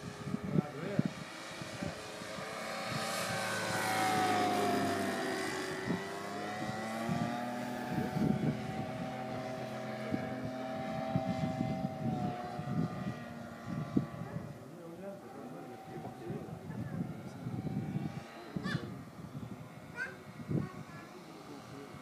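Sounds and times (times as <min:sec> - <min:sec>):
model plane engine drone: 0:00.0 - 0:22.0.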